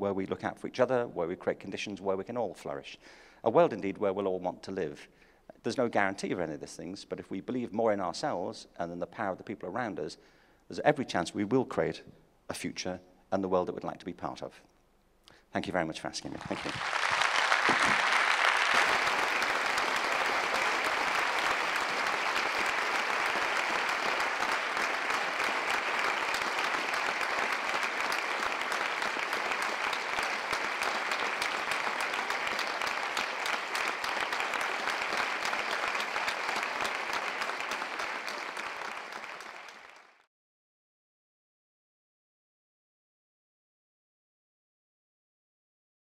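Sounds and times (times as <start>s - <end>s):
audience applauding: 16.2s - 40.3s.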